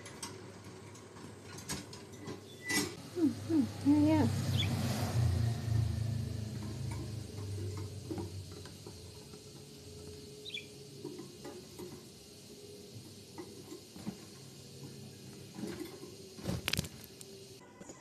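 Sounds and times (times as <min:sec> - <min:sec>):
budgerigar soft chirp: 0:04.5 - 0:04.7, 0:10.4 - 0:10.7.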